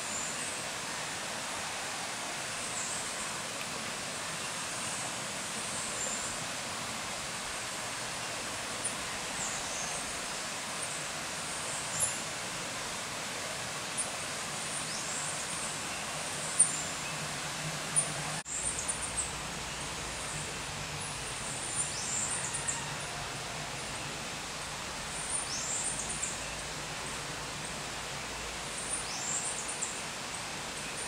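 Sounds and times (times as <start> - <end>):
steady forest hiss: 0.0 - 31.0.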